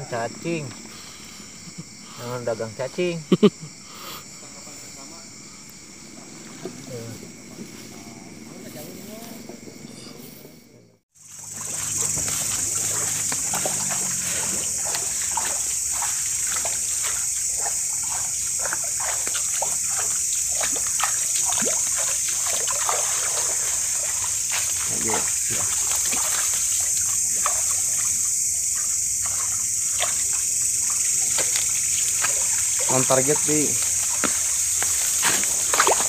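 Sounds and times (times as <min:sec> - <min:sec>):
night insects chorus: 0:00.0 - 0:36.0
footsteps splashing through wet vegetation: 0:11.2 - 0:36.0.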